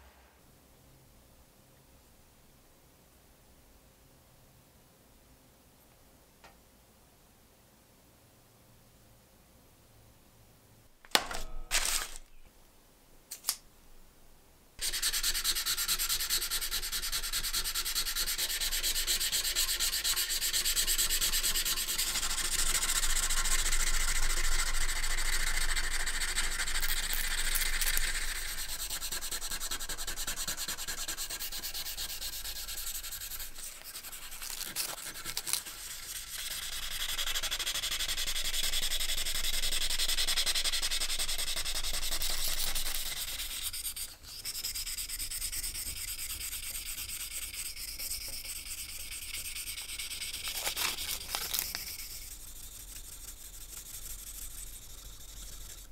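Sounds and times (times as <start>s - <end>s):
sandpaper rubbing on blade: 14.8s - 55.9s.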